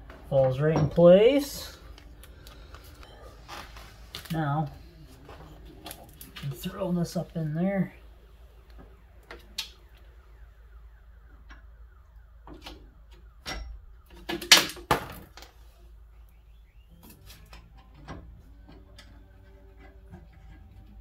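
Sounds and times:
tools and metal parts clinking: 13.4 - 15.6.

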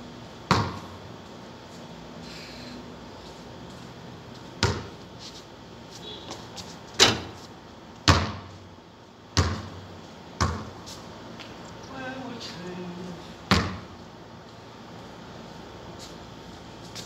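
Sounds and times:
ball hitting backboard and rim: 0.5 - 0.9, 4.6 - 5.0, 7.0 - 7.4, 8.0 - 8.6, 9.4 - 9.8, 10.4 - 10.8, 13.5 - 13.9
basketball bouncing on concrete: 0.5 - 1.0, 4.6 - 5.0, 8.0 - 8.6, 9.4 - 9.8, 10.4 - 10.8, 13.5 - 14.0.

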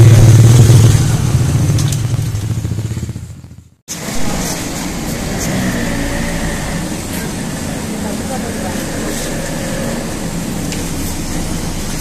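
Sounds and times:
motorbike engine humming: 0.0 - 12.0
steady background noise: 3.9 - 12.0.

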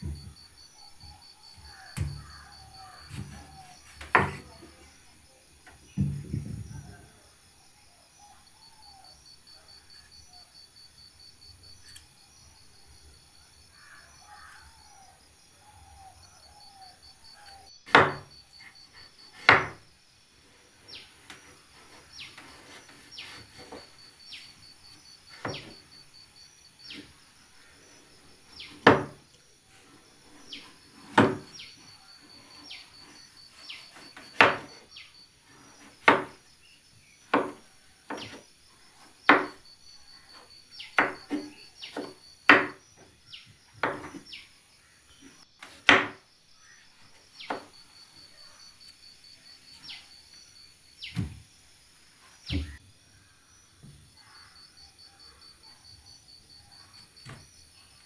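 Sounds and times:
insects trilling: 0.0 - 58.0
knife chopping on wooden board: 1.7 - 4.7, 17.9 - 18.3, 19.3 - 19.8, 25.3 - 25.8, 28.8 - 29.2, 30.9 - 31.6, 32.3 - 34.8, 35.8 - 36.4, 37.3 - 38.4, 39.3 - 39.6, 41.0 - 42.8, 43.8 - 44.2, 45.6 - 46.2.

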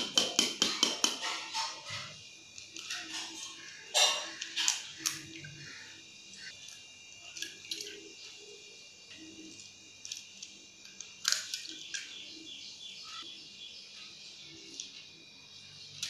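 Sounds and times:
eggs cracking against metal bowl: 0.0 - 5.7, 9.1 - 12.2
faint high chirping: 11.6 - 16.0.

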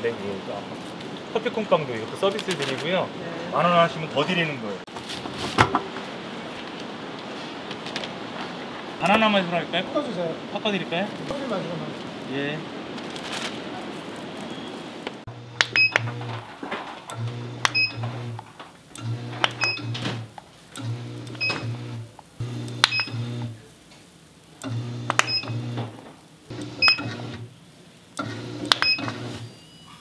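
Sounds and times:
low motor hum: 15.3 - 16.4, 17.1 - 18.4, 19.0 - 23.6.

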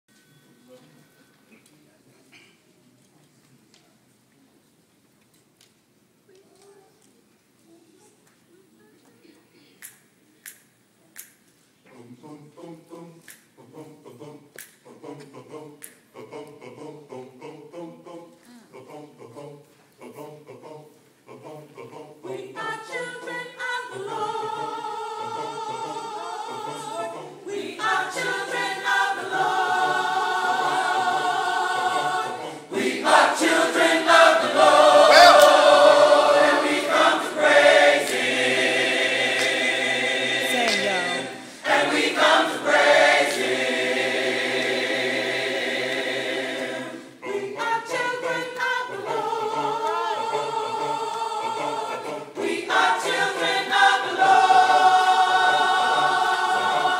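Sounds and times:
choir singing gospel: 11.8 - 56.9.

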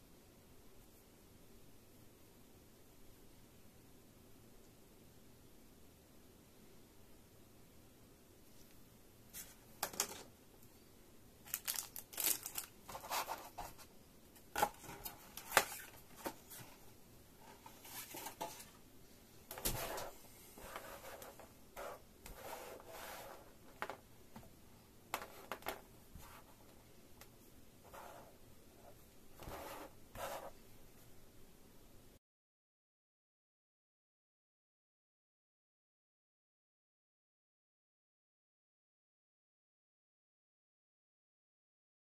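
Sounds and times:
plastic packaging rustling: 11.4 - 13.3.

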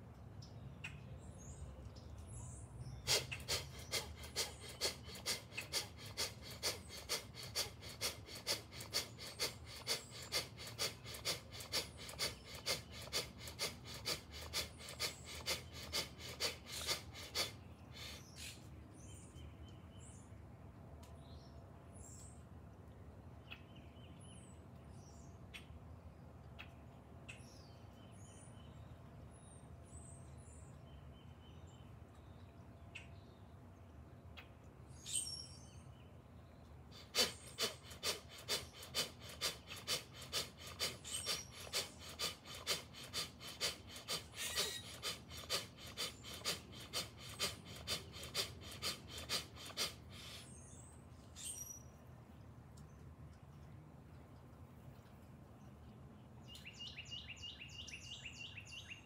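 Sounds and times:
birds chirping faintly: 0.0 - 59.0
rapid forceful breathing: 3.1 - 18.3, 36.9 - 50.6.

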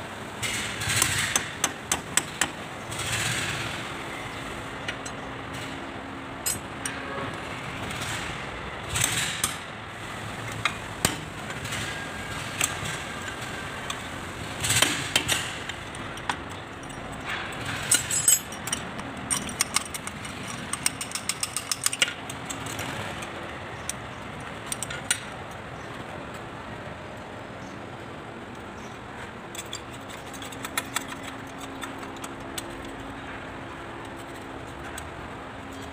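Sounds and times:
metallic clinks and scrapes: 6.4 - 7.2, 16.0 - 25.1, 29.5 - 33.4.

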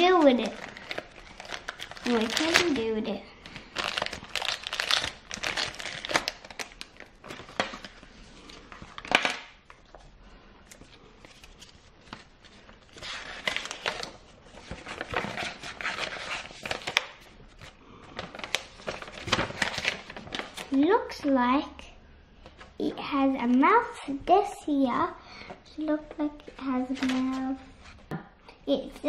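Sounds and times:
plastic packaging crinkling: 0.0 - 9.9, 11.2 - 20.8.

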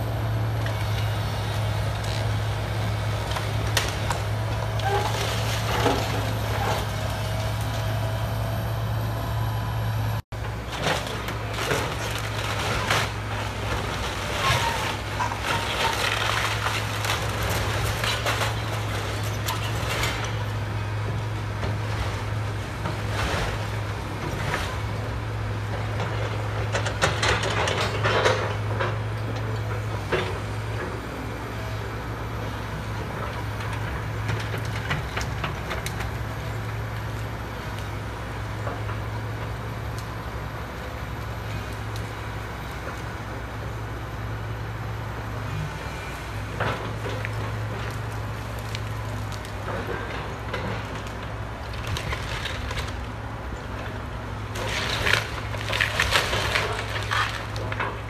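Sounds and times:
diesel excavator engine running: 0.0 - 58.0
wood cracking: 46.8 - 53.1, 54.5 - 58.0.

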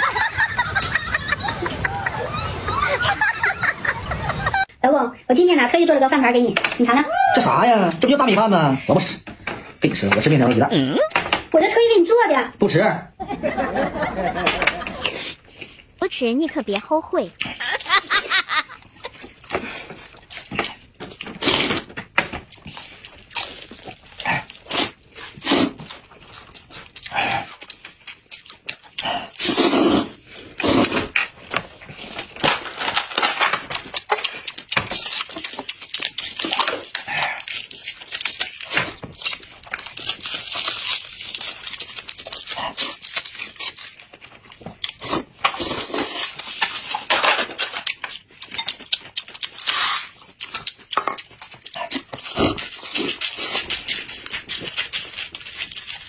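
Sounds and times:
noodles slurped and chewed: 18.8 - 32.5, 33.7 - 56.0.

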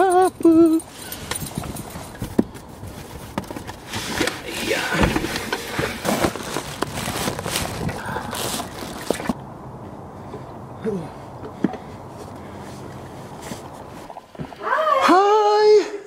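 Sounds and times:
plastic bags rustling: 2.1 - 9.4
items knocking: 3.2 - 9.4.

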